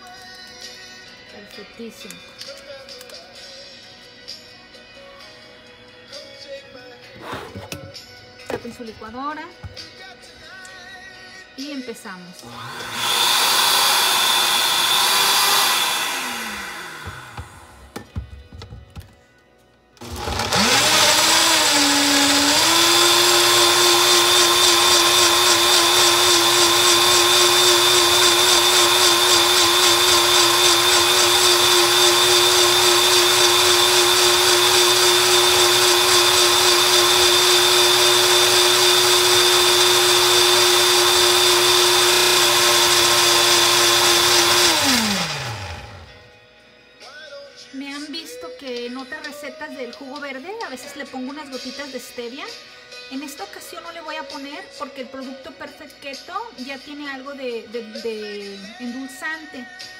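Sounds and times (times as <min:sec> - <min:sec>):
blender motor whining: 0:12.4 - 0:17.9, 0:20.0 - 0:46.3.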